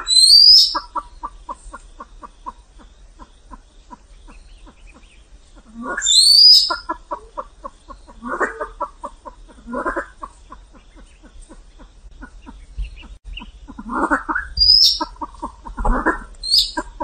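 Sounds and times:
pheasant shrill whistle call: 0.0s - 0.8s, 6.0s - 6.8s, 14.6s - 15.0s
pheasant rapid clucks: 0.0s - 17.0s.

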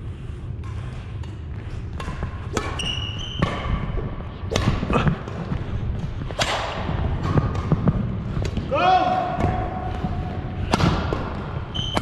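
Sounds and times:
racket striking shuttlecock: 0.6s - 5.4s, 6.3s - 8.6s
sneakers squeaking on wooden court: 2.0s - 4.2s, 11.1s - 12.0s.

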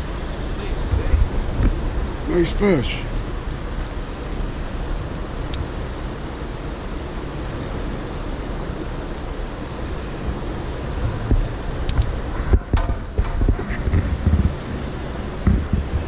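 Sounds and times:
wind on microphone: 0.0s - 2.3s, 10.0s - 16.0s.

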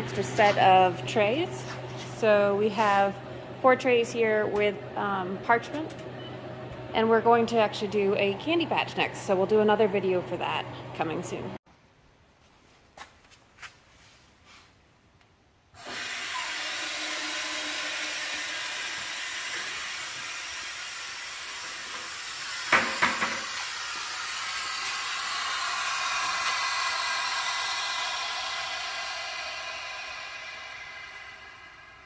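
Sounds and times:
air hissing into vacuum chamber: 15.8s - 32.0s.

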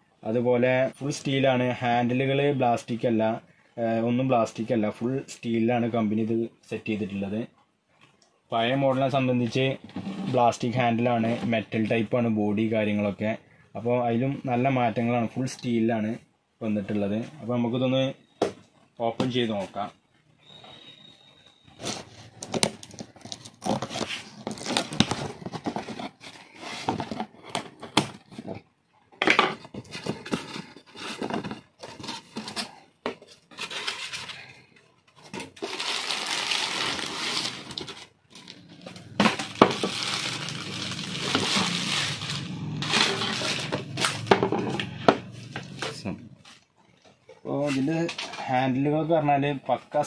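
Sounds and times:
plastic wrapping crinkling: 21.8s - 27.4s, 35.4s - 44.3s
cardboard rustling and scraping: 21.8s - 28.6s, 29.5s - 34.4s, 35.2s - 46.0s.

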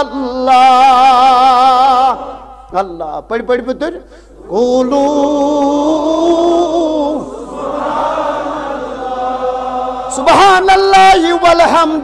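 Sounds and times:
man chanting: 0.0s - 7.4s, 10.1s - 12.0s.

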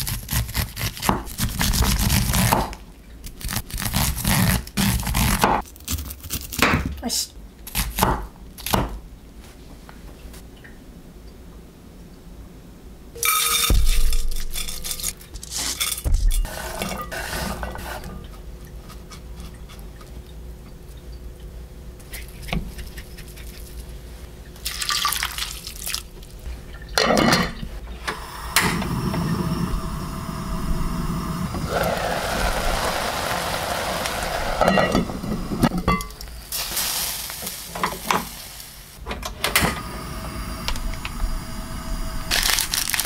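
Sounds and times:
water pouring into a pot: 24.6s - 26.1s, 31.6s - 35.2s, 36.2s - 38.8s
pot hissing on stove: 28.1s - 39.0s.

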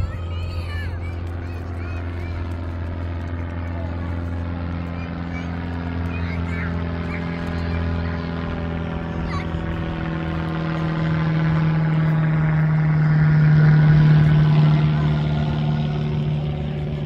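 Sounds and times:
propeller airplane passing overhead: 0.0s - 17.0s.

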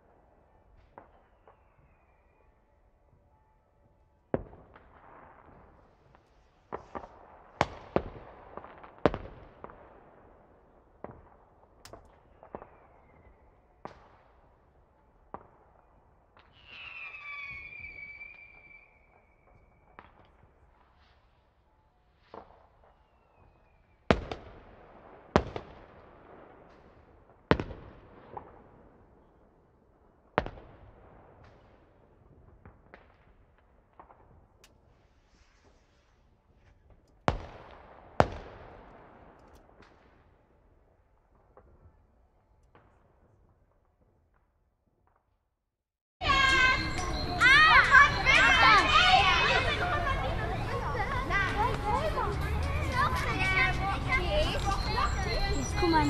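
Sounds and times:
falling firework whistle: 1.0s - 2.8s, 12.3s - 13.6s, 15.5s - 20.6s, 22.3s - 24.1s
fireworks bangs: 4.3s - 21.4s, 22.2s - 29.6s, 30.2s - 42.0s.

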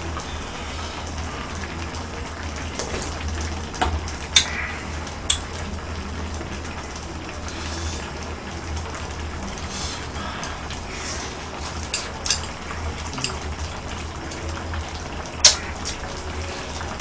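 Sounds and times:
stew bubbling: 0.0s - 17.0s
utensils clinking on dishes: 11.6s - 13.8s.

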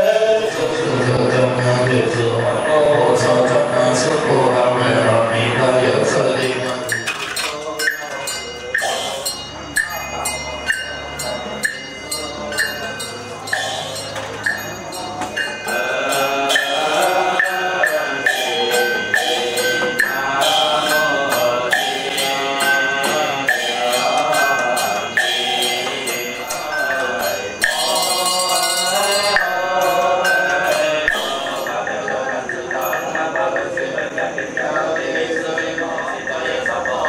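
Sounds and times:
group chanting: 0.0s - 37.0s
steady percussion strokes: 0.0s - 37.0s.

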